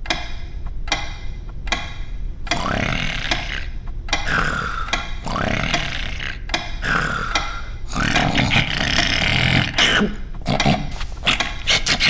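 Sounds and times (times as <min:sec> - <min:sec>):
comic wordless vocal noises: 0:02.5 - 0:12.0.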